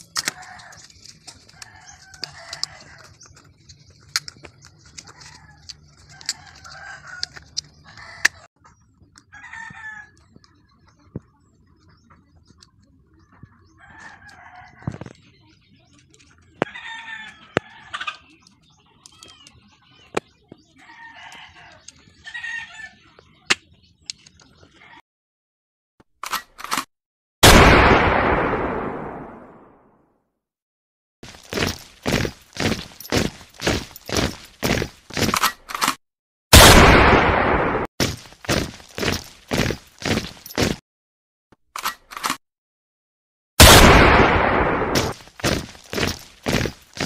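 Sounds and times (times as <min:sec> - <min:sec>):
plastic parts clicking and tapping: 0:00.0 - 0:08.4
chickens calling: 0:00.2 - 0:10.8, 0:16.5 - 0:23.8.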